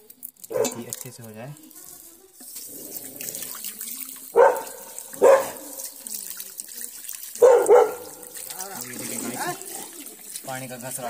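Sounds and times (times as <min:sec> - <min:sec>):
tap water splashing over hands: 0:02.4 - 0:11.0.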